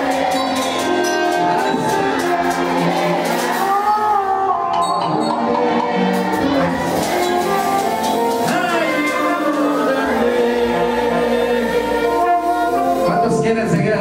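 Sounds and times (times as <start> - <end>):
live band playing: 0.0 - 14.0
man singing into microphone: 8.4 - 12.3.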